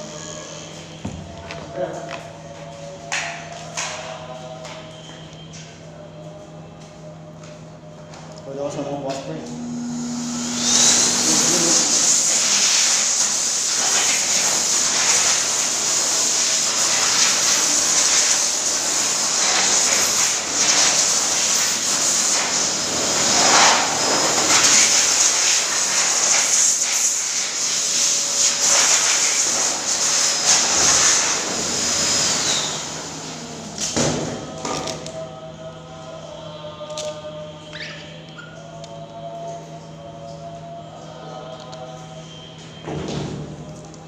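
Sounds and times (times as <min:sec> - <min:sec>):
electric blower motor whining: 0:09.0 - 0:25.8.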